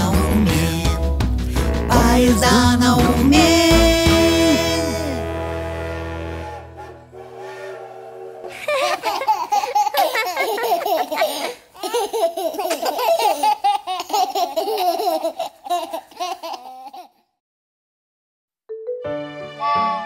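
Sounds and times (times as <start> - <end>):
young children laughing: 8.4 - 17.2.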